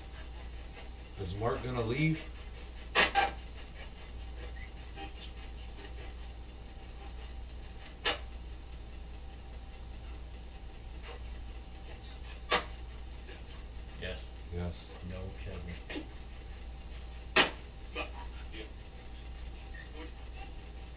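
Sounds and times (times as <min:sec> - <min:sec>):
sharp click: 0:11.0 - 0:13.6, 0:17.0 - 0:20.0.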